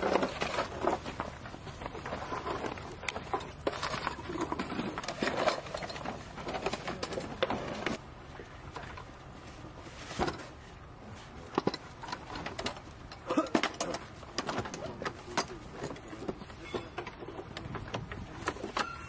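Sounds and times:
equipment clicking and knocking: 0:11.6 - 0:19.0.

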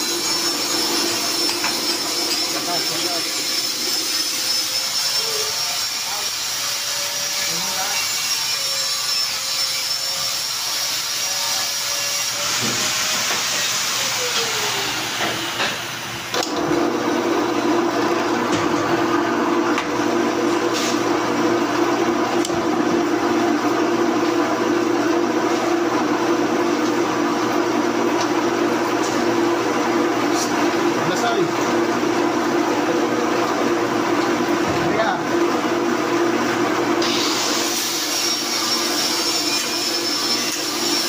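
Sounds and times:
drill press motor whine: 0:00.0 - 0:08.8, 0:10.1 - 0:30.2, 0:35.4 - 0:41.0.

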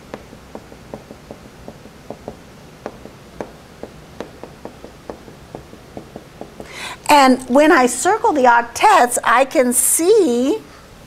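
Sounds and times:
marker tapping on whiteboard: 0:00.0 - 0:06.8.

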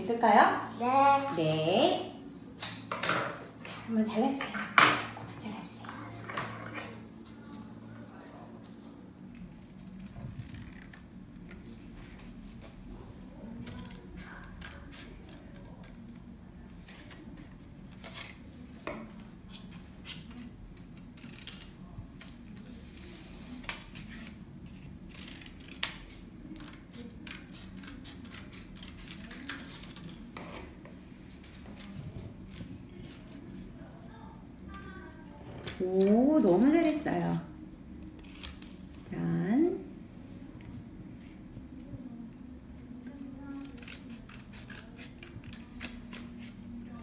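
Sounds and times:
scissors snipping paper: 0:23.6 - 0:33.4, 0:38.2 - 0:38.8, 0:43.4 - 0:47.0.

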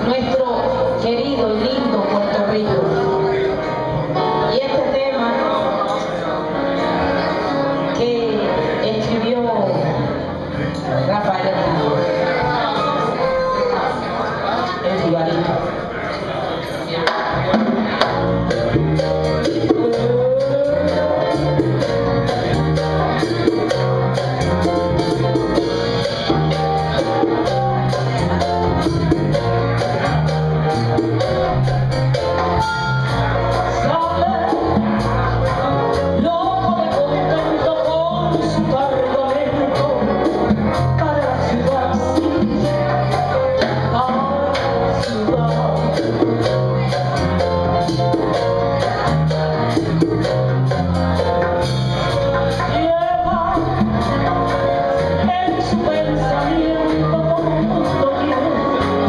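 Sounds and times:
live band playing latin beat: 0:00.0 - 0:59.0
woman singing into a microphone: 0:04.2 - 0:06.1, 0:19.6 - 0:21.6, 0:33.7 - 0:35.1, 0:35.7 - 0:47.3, 0:52.5 - 0:59.0.

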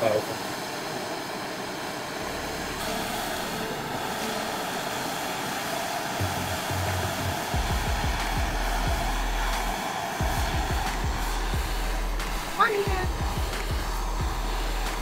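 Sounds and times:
propane torch hissing: 0:00.0 - 0:15.0
background music with bass: 0:06.2 - 0:15.0.

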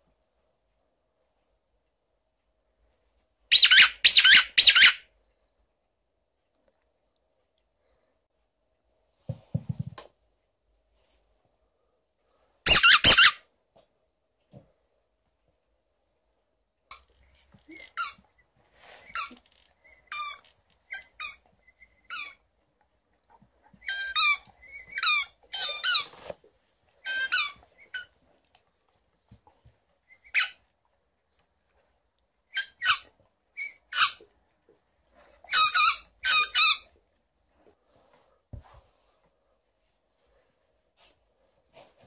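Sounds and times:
squeaky dog toy squeaking: 0:03.5 - 0:05.0, 0:12.7 - 0:13.4, 0:19.1 - 0:22.4, 0:23.8 - 0:26.1, 0:27.0 - 0:28.1, 0:30.2 - 0:30.6, 0:32.5 - 0:34.3, 0:35.5 - 0:36.9.

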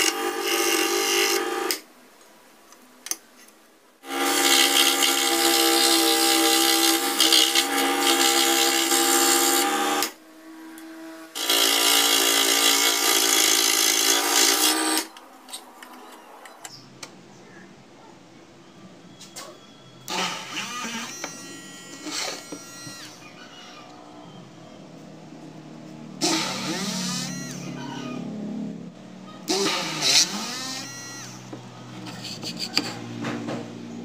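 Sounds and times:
scroll saw cutting wood: 0:00.0 - 0:01.8, 0:04.0 - 0:10.2, 0:10.8 - 0:15.6, 0:20.1 - 0:23.9, 0:26.2 - 0:28.1, 0:29.4 - 0:33.1.

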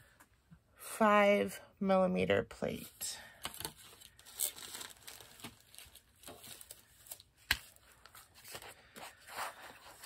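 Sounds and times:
plastic packaging rustling: 0:03.4 - 0:10.0.

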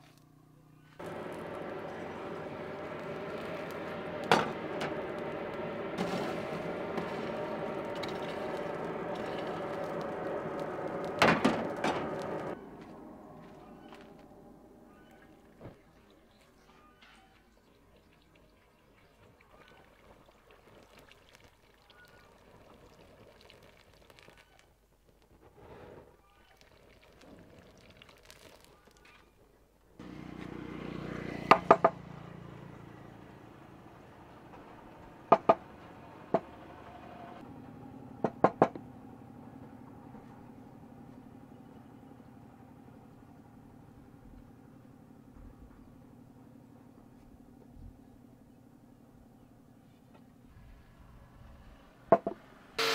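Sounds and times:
hot blade crackling in oil: 0:01.0 - 0:12.6
forge blower humming: 0:01.0 - 0:14.9.

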